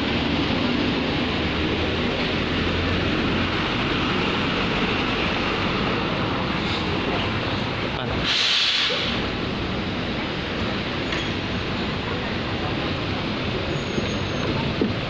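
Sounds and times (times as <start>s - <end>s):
bus engine idling: 0.0s - 15.0s
hiss of air: 8.2s - 9.2s.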